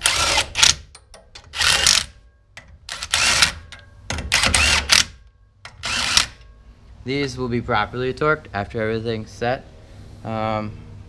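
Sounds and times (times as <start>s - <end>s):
cordless drill whining: 5.8s - 6.4s.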